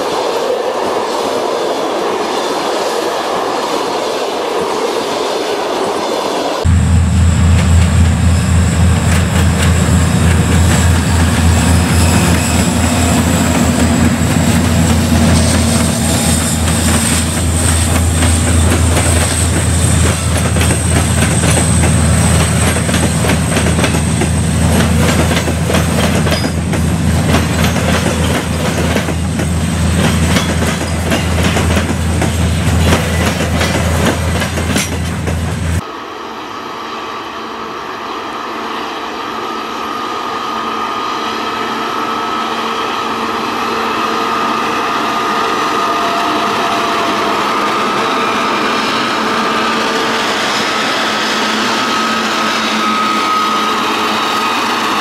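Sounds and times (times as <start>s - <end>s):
diesel locomotive engine whine: 0.0s - 55.0s
train wheels clattering: 7.0s - 35.8s.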